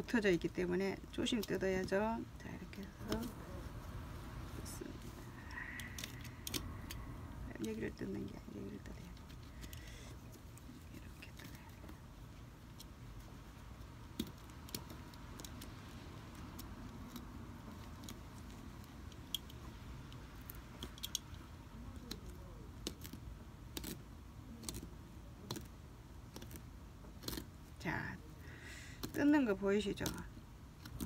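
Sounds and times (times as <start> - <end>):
seam ripper cutting stitches: 28.8 - 31.0.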